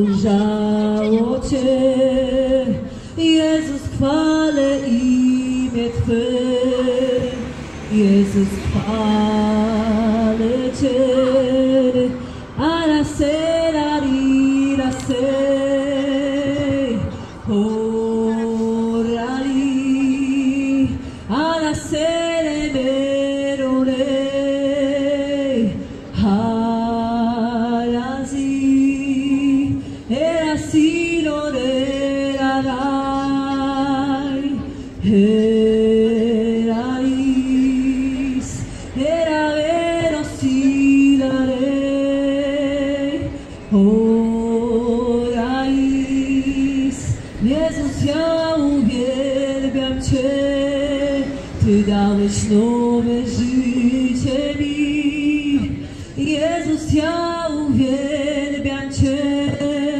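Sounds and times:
woman singing: 0:00.0 - 0:59.9
singer breathing: 0:02.8 - 0:03.2, 0:12.2 - 0:12.6, 0:21.0 - 0:21.3, 0:29.8 - 0:30.1, 0:38.6 - 0:39.0, 0:43.3 - 0:43.7, 0:55.8 - 0:56.2.

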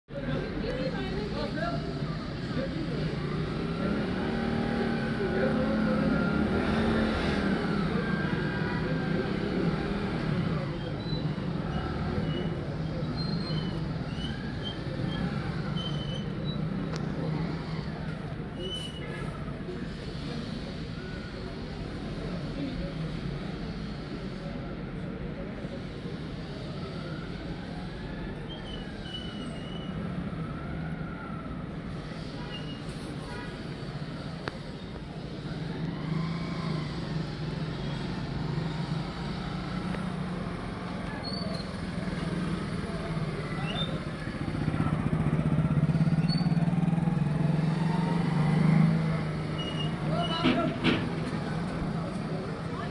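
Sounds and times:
motorcycle engines running: 0:33.7 - 0:52.9.

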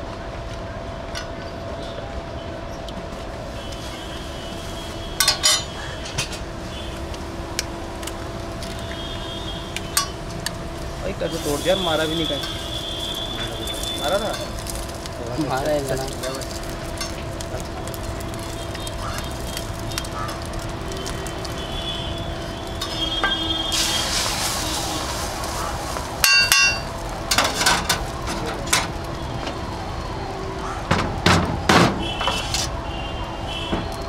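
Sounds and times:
food frying hiss: 0:03.4 - 0:29.8
ladle clinking on iron griddle: 0:05.2 - 0:06.4, 0:26.2 - 0:28.0.

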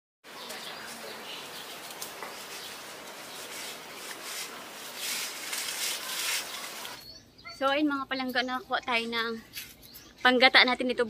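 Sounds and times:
leaves and branches rustling: 0:00.3 - 0:07.0.

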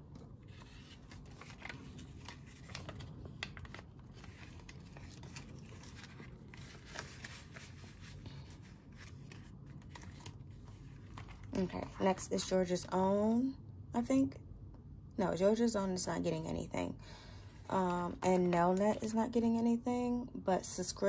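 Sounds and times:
plastic envelope crinkling: 0:00.1 - 0:12.2, 0:17.7 - 0:19.2
paper banknote rustling: 0:00.2 - 0:12.0.

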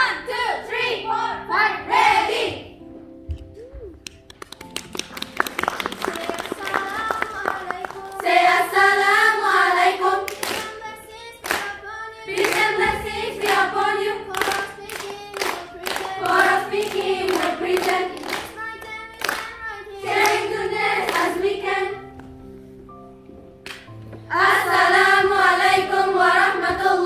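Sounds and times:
girls' choir singing: 0:00.0 - 0:02.8, 0:06.0 - 0:22.2, 0:24.3 - 0:27.0
sharp hand claps: 0:04.0 - 0:08.3, 0:11.4 - 0:11.7, 0:14.4 - 0:16.3, 0:17.0 - 0:19.6, 0:23.6 - 0:23.9.

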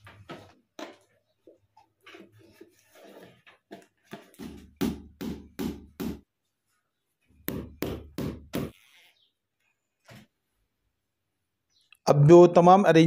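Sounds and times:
hammer driving nails: 0:04.2 - 0:06.2, 0:07.4 - 0:08.8.

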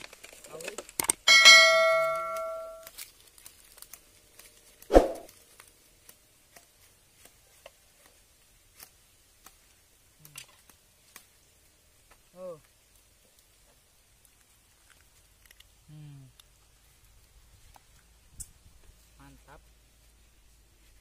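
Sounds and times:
bamboo clicks and cracks: 0:00.0 - 0:01.3, 0:02.2 - 0:19.0
machete striking with metallic ring: 0:01.3 - 0:02.8.

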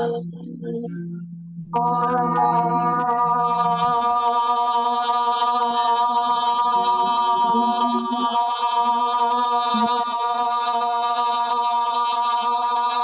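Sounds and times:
woman singing sustained vowel: 0:00.0 - 0:10.1.

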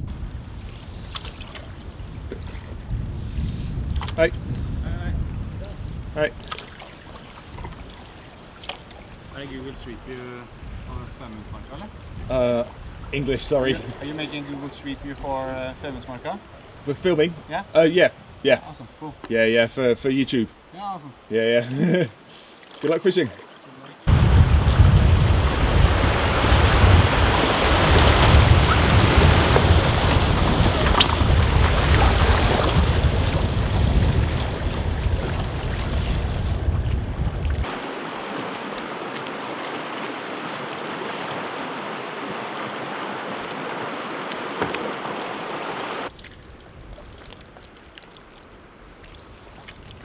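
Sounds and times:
wind buffeting microphone: 0:00.0 - 0:08.4, 0:09.0 - 0:17.5, 0:24.1 - 0:38.3
rushing river water: 0:06.2 - 0:50.0.

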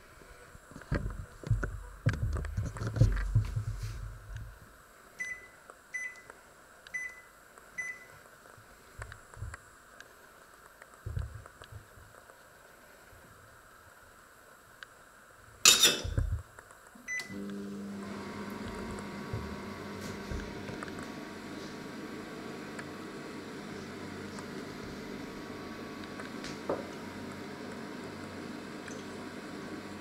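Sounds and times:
microwave beeps: 0:05.2 - 0:06.3, 0:06.9 - 0:08.1, 0:17.0 - 0:17.5.

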